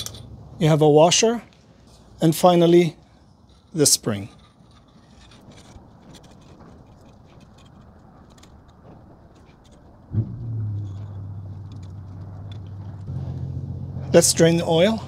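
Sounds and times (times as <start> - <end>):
low steady motor hum: 10.1 - 15.0.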